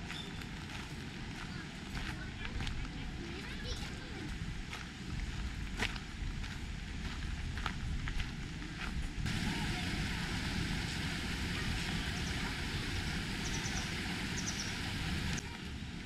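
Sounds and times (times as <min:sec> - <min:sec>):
steady rushing hiss: 0:08.4 - 0:16.0
faint high chirps: 0:13.3 - 0:15.0.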